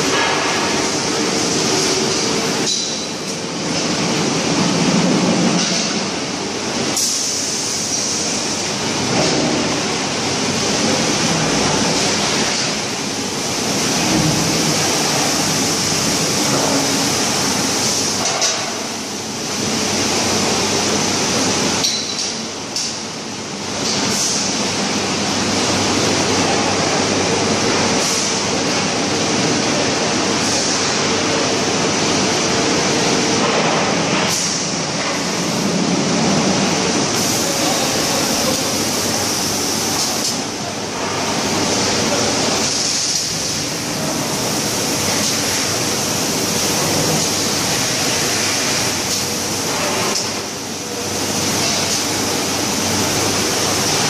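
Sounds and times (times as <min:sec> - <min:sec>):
machinery noise: 0:31.1 - 0:54.0.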